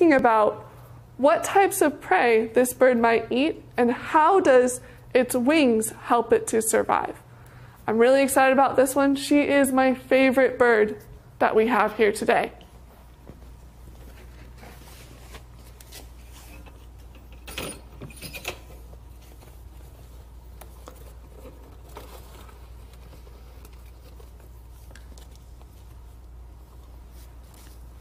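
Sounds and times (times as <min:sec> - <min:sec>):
steady low hum: 0:00.0 - 0:28.0
cloth rustling: 0:12.8 - 0:16.7, 0:18.8 - 0:28.0.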